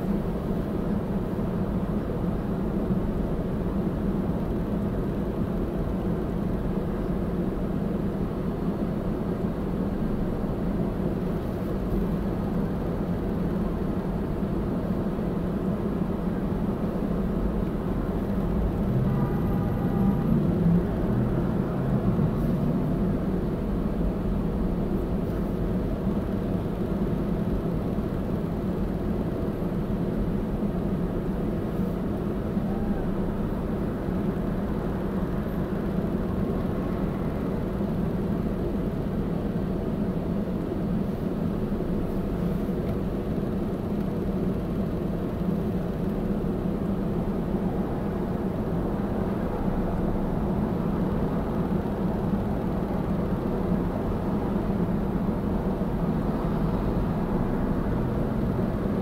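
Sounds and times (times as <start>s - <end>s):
cross traffic passing: 16.9s - 27.4s, 45.0s - 59.0s.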